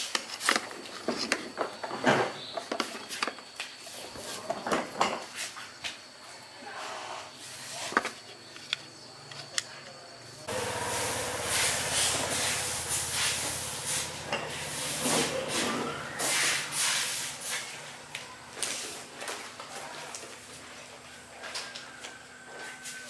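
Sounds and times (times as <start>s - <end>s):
low mechanical hum: 10.4s - 22.5s
loud hissing bursts: 10.5s - 18.1s.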